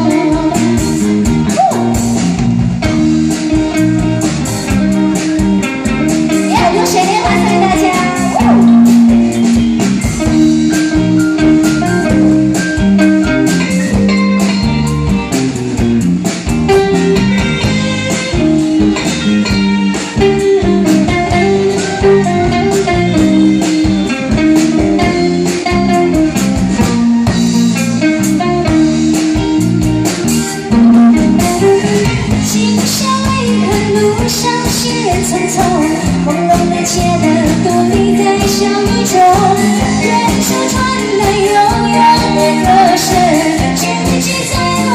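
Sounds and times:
woman singing: 0.0s - 1.1s, 6.3s - 9.3s, 32.4s - 44.9s
live band playing pop ballad: 0.0s - 44.9s.

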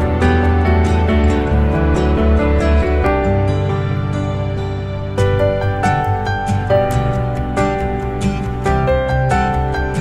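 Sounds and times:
repeating low bass: 0.0s - 6.8s.

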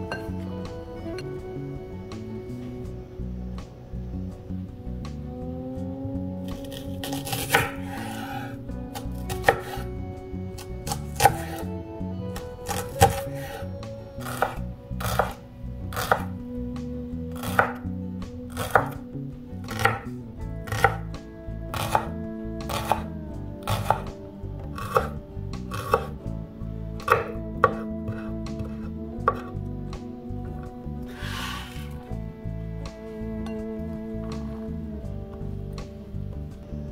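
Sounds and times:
knife chopping on wooden board: 7.1s - 8.4s, 9.0s - 9.8s, 10.9s - 11.6s, 12.7s - 13.5s, 14.2s - 15.4s, 16.0s - 16.3s, 17.4s - 17.8s, 18.5s - 19.0s, 19.7s - 20.1s, 20.7s - 21.0s, 21.8s - 22.1s, 22.7s - 23.0s, 23.7s - 24.1s, 24.8s - 25.1s, 25.7s - 26.1s, 27.0s - 27.8s, 28.6s - 29.5s.

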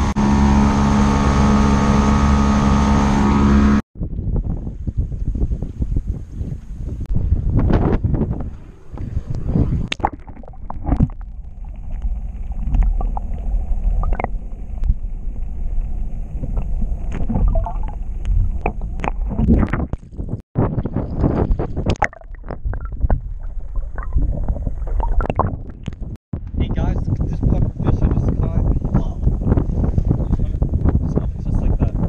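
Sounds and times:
muffled underwater rumbling: 0.0s - 32.0s
water sloshing: 9.8s - 26.2s.

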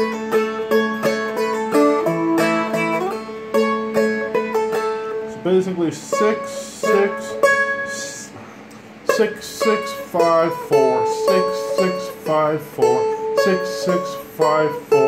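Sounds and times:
plucked string notes: 0.0s - 15.0s.

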